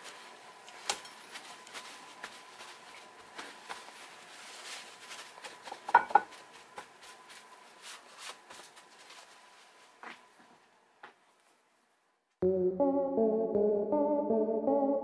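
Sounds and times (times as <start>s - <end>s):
paper towels rustling: 0.0s - 10.6s.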